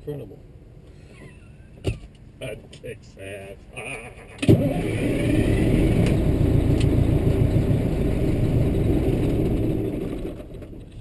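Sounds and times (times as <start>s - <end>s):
diesel engine running: 4.2s - 11.0s.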